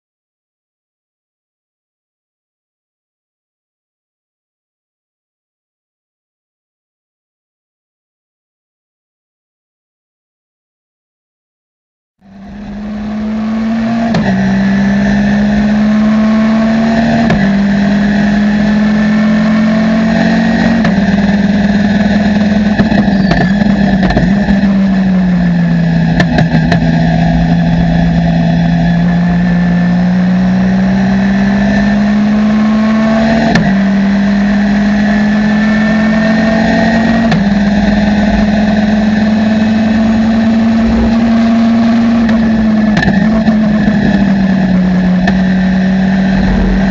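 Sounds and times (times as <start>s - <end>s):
race car engine revving: 12.3s - 46.9s.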